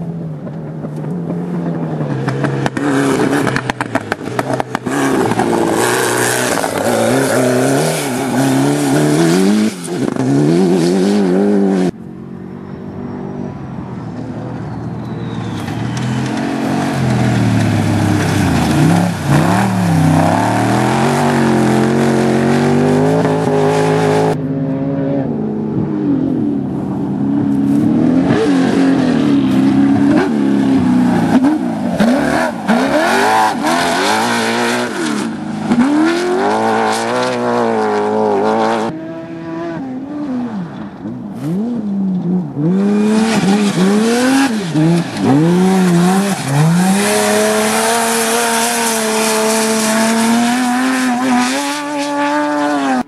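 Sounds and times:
racing buggy engines revving: 0:00.0 - 0:53.0.

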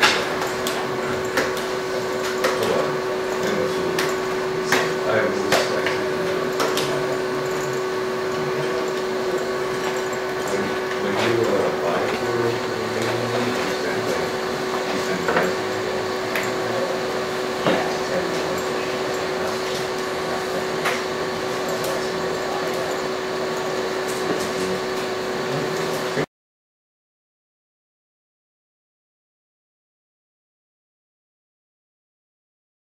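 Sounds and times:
robot motors humming: 0:00.0 - 0:26.3.

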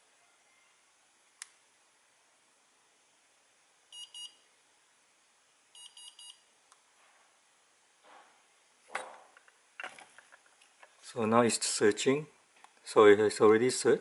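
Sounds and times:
faint click: 0:01.4 - 0:01.6.

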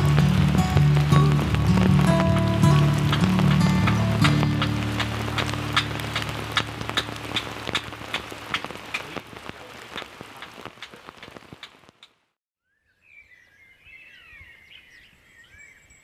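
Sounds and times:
background music: 0:00.0 - 0:09.1
rain drops on a tarp: 0:00.0 - 0:12.4.

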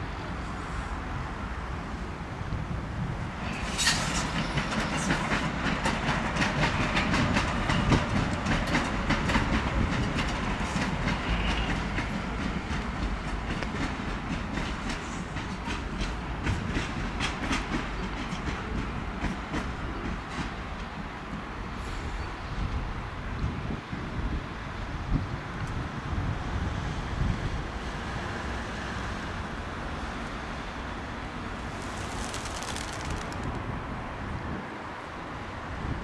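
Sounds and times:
train low rumble: 0:00.0 - 0:32.3
train wheels clicking over rail joints: 0:03.5 - 0:21.0.

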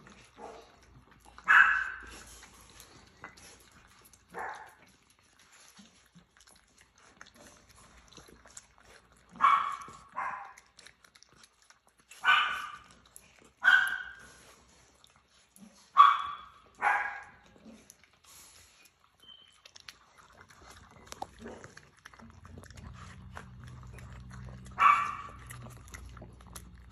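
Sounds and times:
small dog barking: 0:01.4 - 0:02.2, 0:04.3 - 0:04.8, 0:09.3 - 0:10.7, 0:12.2 - 0:13.0, 0:13.6 - 0:14.3, 0:15.9 - 0:17.4, 0:24.7 - 0:25.8.

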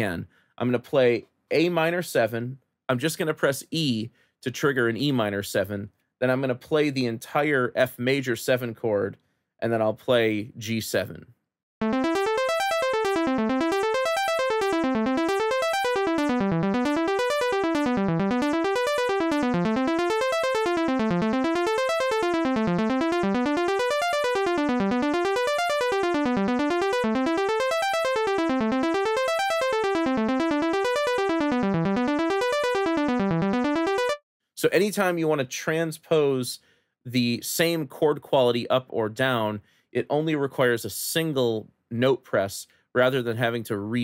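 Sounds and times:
arpeggiated synthesizer notes: 0:11.8 - 0:34.2.

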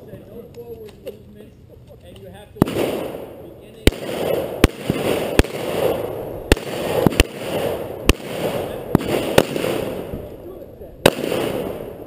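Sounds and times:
gunshots: 0:02.6 - 0:10.4, 0:11.0 - 0:12.0.

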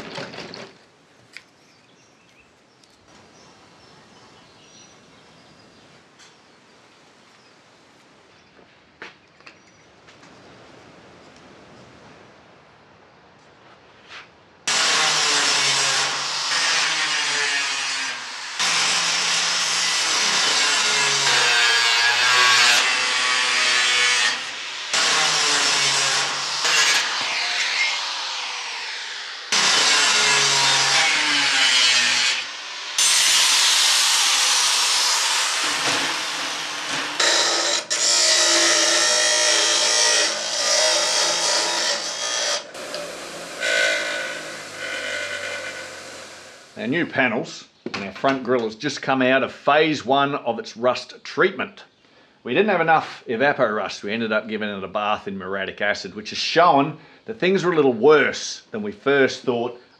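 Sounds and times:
angle grinder cutting steel: 0:14.7 - 0:46.8.

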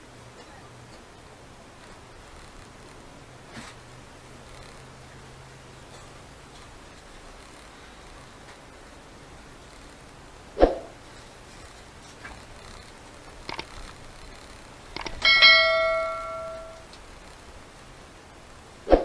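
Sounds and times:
faint ticks: 0:05.9 - 0:10.2, 0:11.1 - 0:15.3
cluster of clicks: 0:09.6 - 0:17.4
ringing ding: 0:15.2 - 0:16.8.

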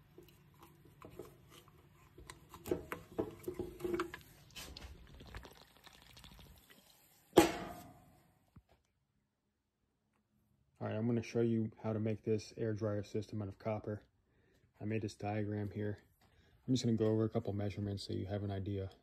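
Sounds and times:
liquid sloshing in can: 0:00.1 - 0:07.0.

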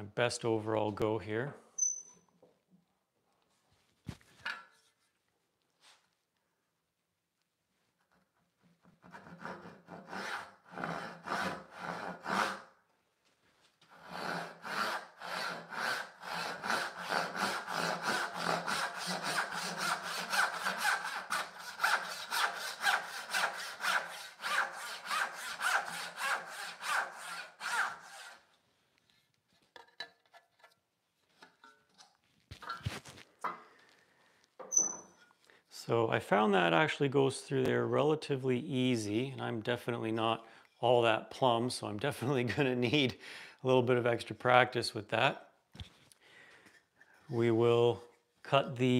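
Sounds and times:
hand saw cutting wood: 0:08.9 - 0:12.8, 0:13.9 - 0:28.5.

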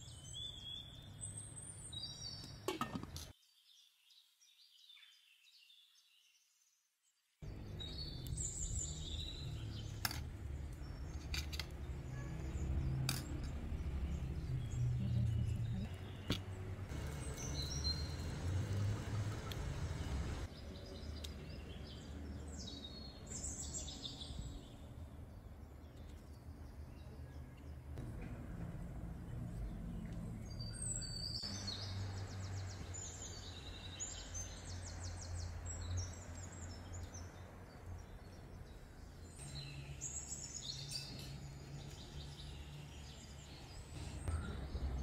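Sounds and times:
birds chirping: 0:07.4 - 0:28.0, 0:29.2 - 0:45.0
low outdoor rumble: 0:07.5 - 0:20.5, 0:28.0 - 0:32.9.

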